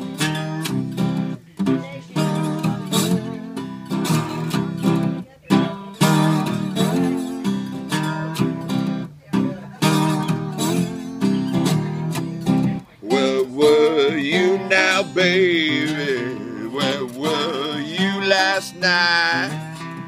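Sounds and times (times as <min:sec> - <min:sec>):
slide blues acoustic guitar riff: 0:00.0 - 0:20.0.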